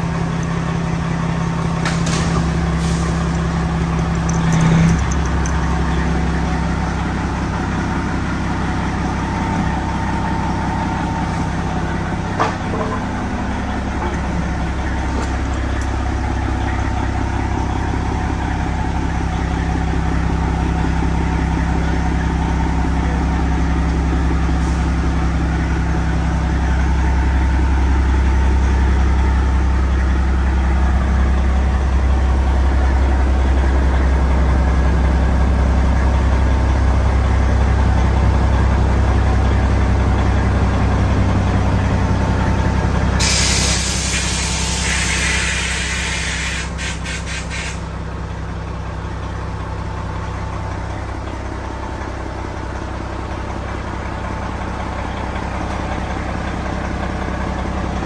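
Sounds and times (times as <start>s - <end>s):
truck diesel engine idling: 0.0s - 58.0s
air brake hiss: 2.8s - 3.2s, 43.2s - 47.9s.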